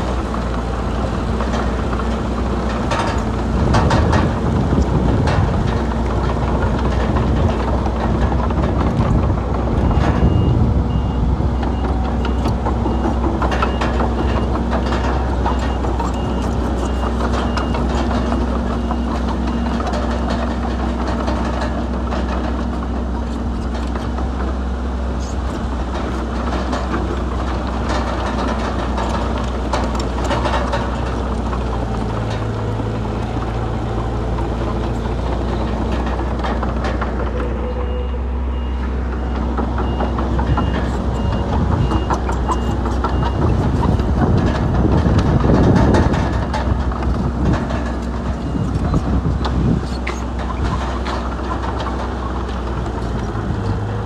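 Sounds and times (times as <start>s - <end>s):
diesel engines running: 0.0s - 54.0s
knocks and rattles: 0.3s - 37.7s, 38.5s - 54.0s
reversing beeper: 37.4s - 43.5s.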